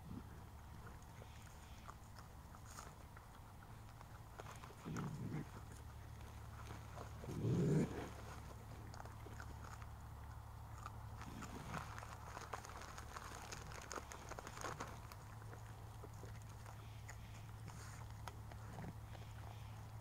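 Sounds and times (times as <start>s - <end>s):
steady low hum: 0.0s - 20.0s
faint clicks and crunches: 0.6s - 20.0s
animal grunts: 4.4s - 6.1s, 6.7s - 8.8s.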